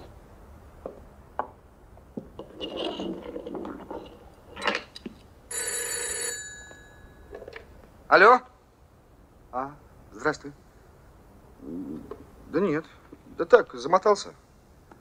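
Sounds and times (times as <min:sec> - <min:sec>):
telephone bell ringing: 0:05.5 - 0:07.5.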